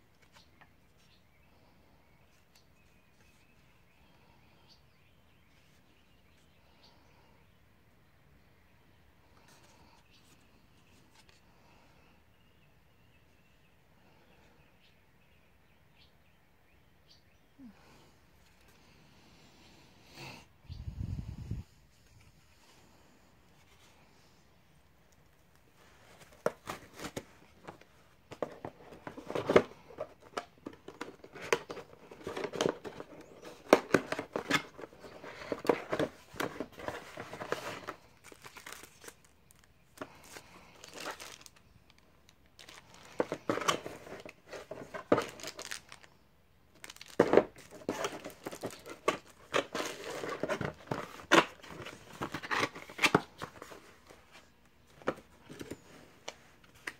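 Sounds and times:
cardboard and plastic rustling: 0:25.2 - 0:46.1, 0:46.7 - 0:56.9.

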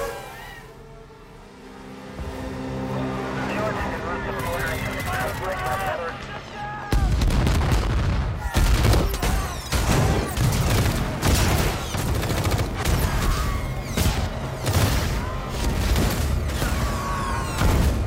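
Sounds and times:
explosions: 0:06.9 - 0:13.4
gunfire: 0:07.0 - 0:16.9.

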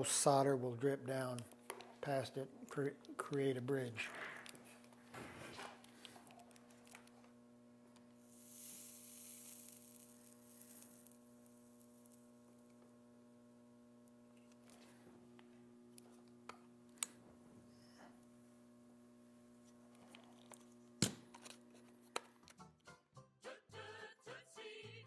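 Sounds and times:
electrical hum: 0:00.0 - 0:22.5
soldering iron hissing: 0:08.0 - 0:13.1.

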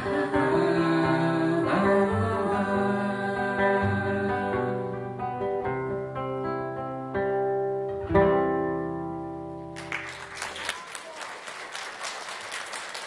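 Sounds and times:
acoustic guitar chord ringing: 0:00.0 - 0:09.9
audience applause: 0:09.8 - 0:13.0.

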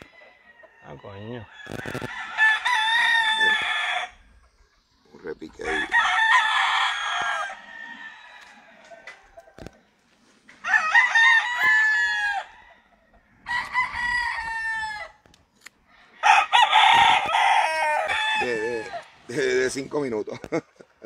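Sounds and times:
rooster crowing: 0:00.0 - 0:04.2, 0:05.7 - 0:09.7, 0:10.6 - 0:15.2, 0:16.0 - 0:19.1.

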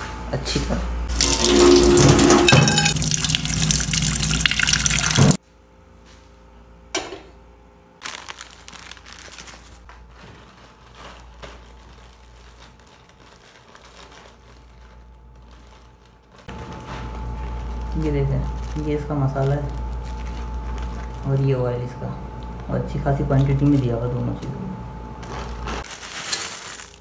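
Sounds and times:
tap water pouring into sink: 0:01.1 - 0:05.4
plastic packet crinkling: 0:08.0 - 0:21.6, 0:25.2 - 0:27.0.

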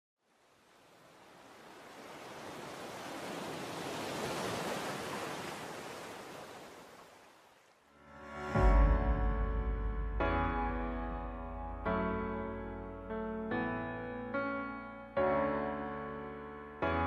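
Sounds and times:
music with deep bass: 0:08.6 - 0:13.0.

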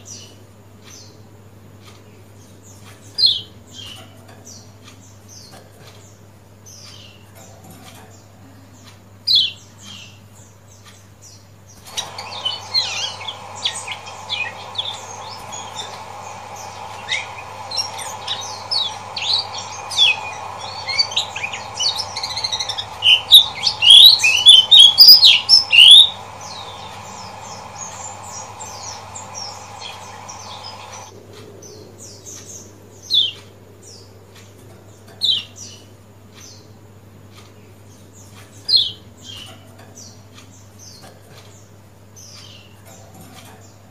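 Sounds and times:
background hiss: 0:11.7 - 0:31.2
bird chirping sharply: 0:11.8 - 0:31.1
low hum: 0:11.9 - 0:31.1.

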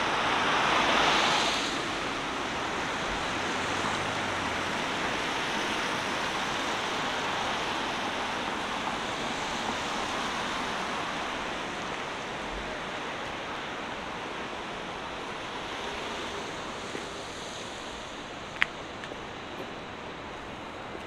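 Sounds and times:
street traffic roar: 0:00.0 - 0:21.0.

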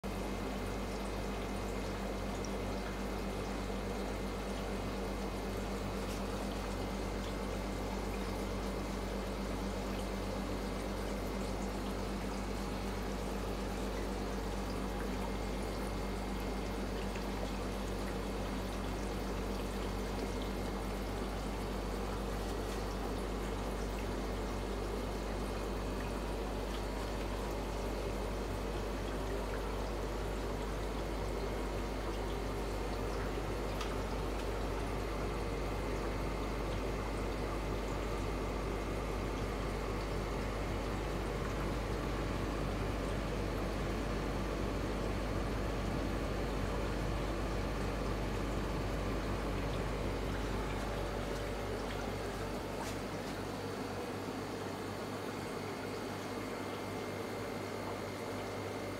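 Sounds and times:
water trickling and bubbling: 0:00.0 - 0:58.9.

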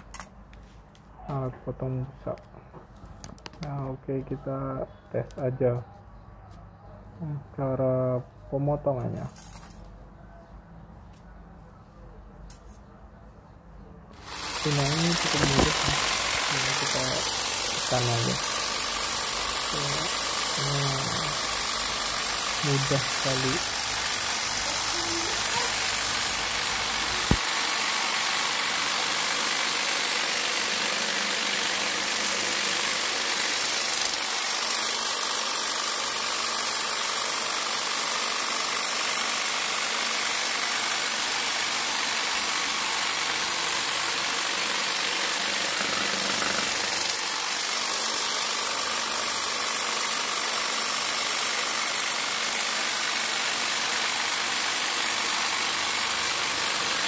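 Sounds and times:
electric jigsaw cutting foam: 0:14.1 - 0:57.0.

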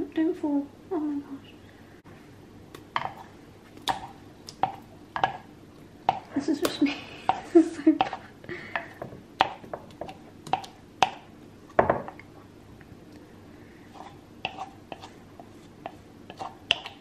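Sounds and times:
utensils scraping mixing bowls: 0:13.9 - 0:17.0.

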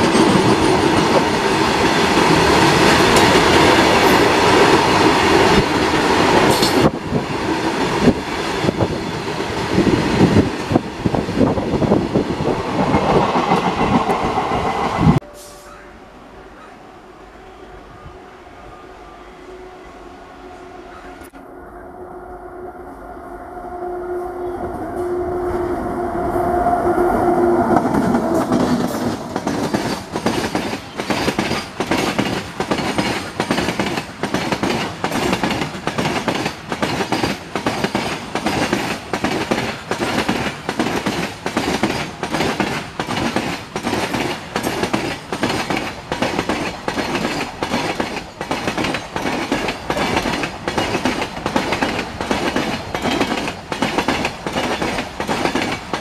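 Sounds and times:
electric locomotive passing: 0:00.0 - 0:56.0
wagon wheels clickety-clack: 0:28.6 - 0:56.0.

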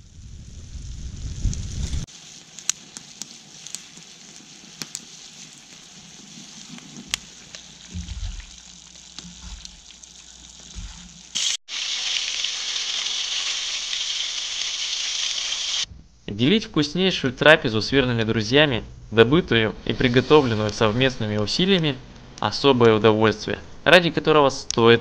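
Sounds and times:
fire pops and crackles: 0:00.0 - 0:11.6
meat sizzling in pan: 0:00.0 - 0:15.9
simmering hiss: 0:00.0 - 0:25.0.

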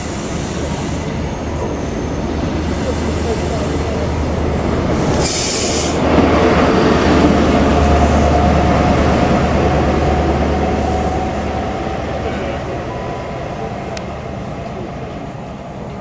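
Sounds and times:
wheel and rail noise: 0:00.0 - 0:16.0
short hiss: 0:05.2 - 0:06.0.

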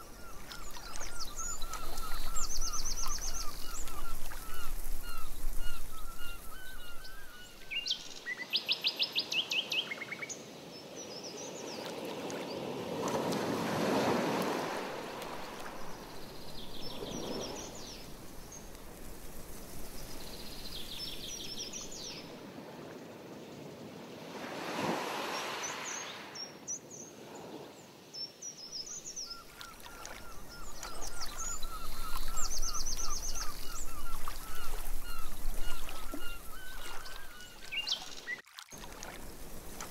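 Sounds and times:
small birds singing: 0:00.0 - 0:11.9, 0:15.4 - 0:18.8, 0:19.5 - 0:22.4, 0:28.1 - 0:38.4.

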